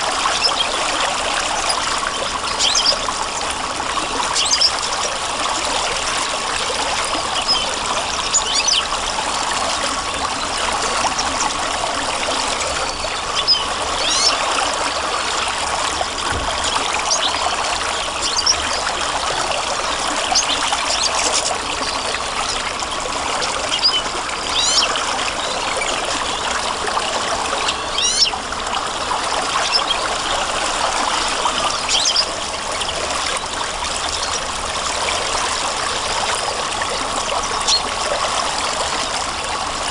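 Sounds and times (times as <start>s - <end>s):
stream flowing: 0.0s - 39.9s
bird chirps: 2.5s - 3.0s, 7.4s - 8.8s, 12.8s - 14.4s, 24.6s - 24.9s, 27.6s - 28.4s.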